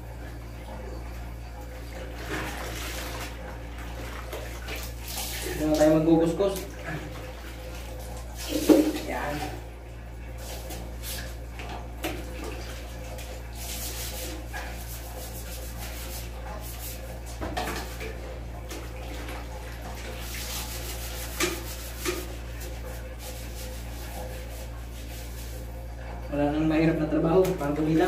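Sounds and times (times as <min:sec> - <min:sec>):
water sloshing: 0:01.7 - 0:09.8, 0:10.4 - 0:26.3
scrubber rasping in toilet bowl: 0:12.4 - 0:25.8.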